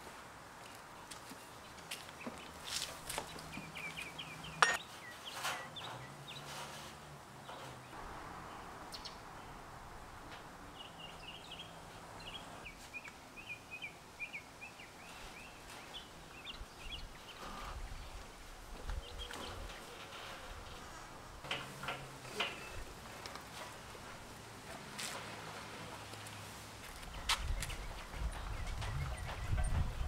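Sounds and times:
small birds chirping: 1.2s - 6.6s, 7.4s - 9.6s, 10.6s - 21.0s, 27.1s - 30.0s.

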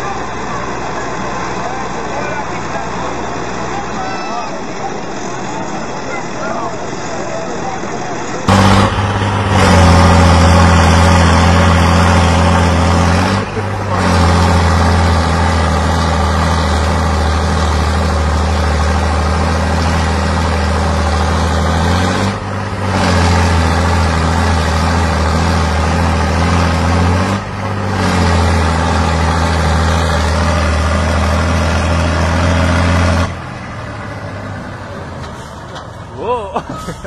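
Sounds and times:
tractor diesel engines droning: 0.0s - 37.0s.

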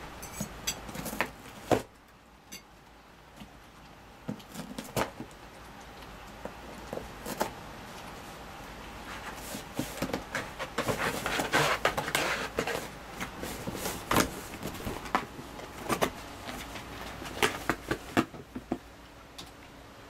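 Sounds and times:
cat tearing cardboard: 9.1s - 18.4s.

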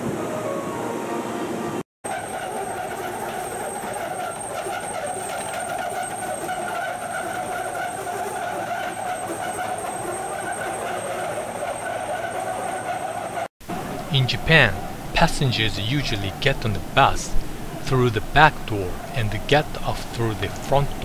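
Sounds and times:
vehicle engine and traffic noise: 13.6s - 21.0s.

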